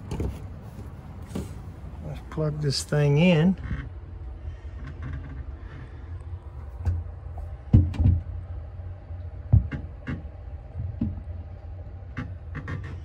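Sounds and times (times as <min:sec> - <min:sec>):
dull knocks: 0:07.6 - 0:08.4, 0:09.5 - 0:11.3.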